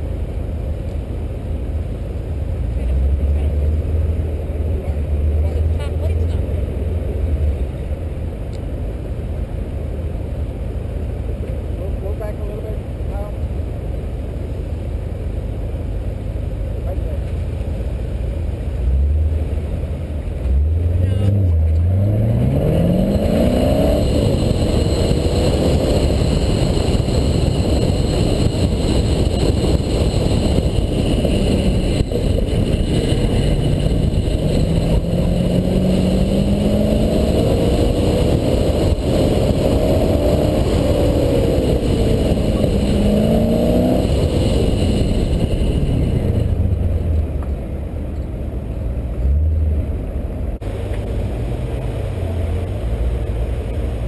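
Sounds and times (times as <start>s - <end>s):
car engine accelerating: 0.0s - 54.0s
wind noise: 20.8s - 48.6s.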